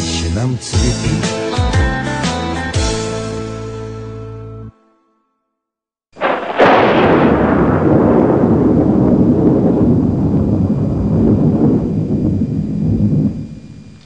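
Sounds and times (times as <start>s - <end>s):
thunder crack: 6.2s - 13.9s
rolling thunder rumble: 6.2s - 14.0s.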